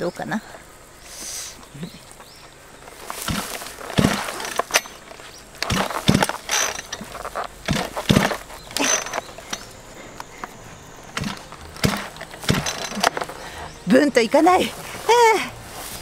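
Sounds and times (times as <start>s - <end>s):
small engine pull-start cranking: 5.6s - 9.7s, 11.2s - 13.4s.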